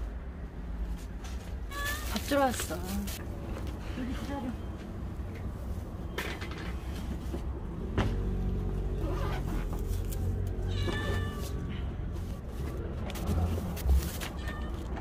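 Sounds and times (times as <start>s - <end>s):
cat meowing: 10.6s - 11.7s.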